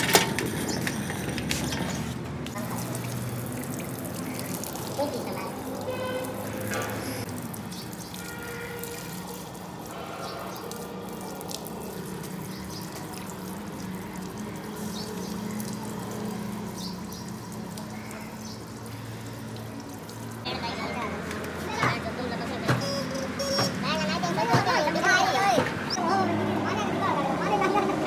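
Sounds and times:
hose water spraying on metal: 0.0s - 25.6s.

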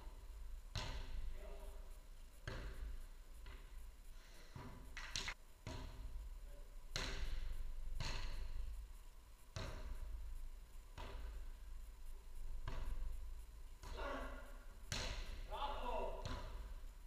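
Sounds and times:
ball kicked and headed: 0.7s - 1.4s, 2.4s - 3.8s, 4.5s - 6.2s, 6.9s - 8.7s, 9.5s - 10.3s, 10.9s - 11.6s, 12.5s - 16.8s.

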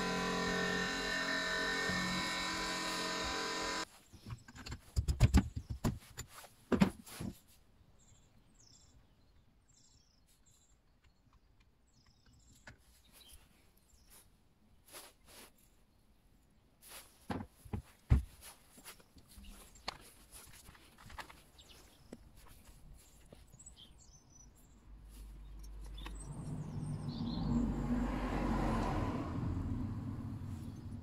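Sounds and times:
steady hum: 0.0s - 3.8s.

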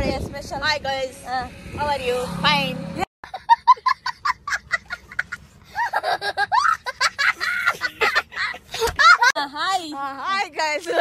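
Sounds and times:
young child laughing: 3.2s - 9.4s.

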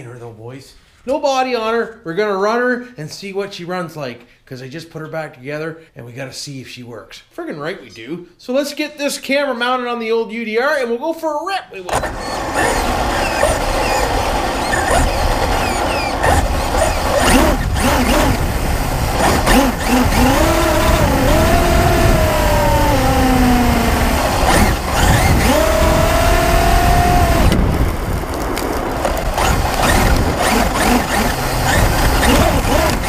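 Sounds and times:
electric motor whine: 12.0s - 33.0s
tyres crunching on gravel: 12.5s - 33.0s.

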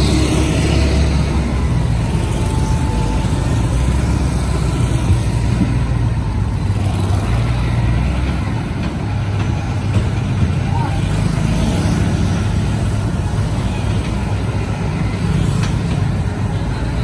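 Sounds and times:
cars passing: 0.0s - 17.0s
motorbikes passing: 0.0s - 17.0s
truck engine running: 0.0s - 17.0s
wheel loader engine: 0.0s - 17.0s.

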